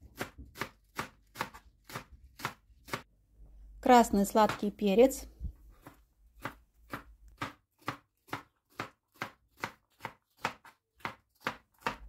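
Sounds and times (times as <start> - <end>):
knife chopping on cutting board: 0.1 - 3.1, 5.8 - 12.0.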